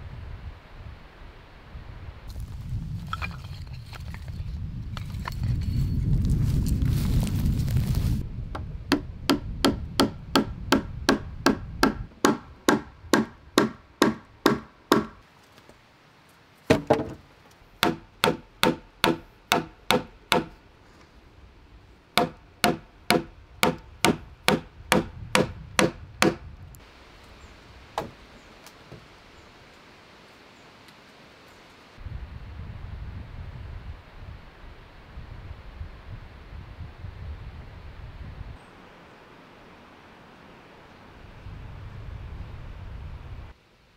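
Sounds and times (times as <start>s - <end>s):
wind rumbling on microphone: 0.0s - 13.6s, 23.2s - 28.4s, 32.0s - 38.9s, 40.8s - 43.6s
wooden pegs being hammered: 8.9s - 15.2s, 17.8s - 20.6s, 22.2s - 26.4s.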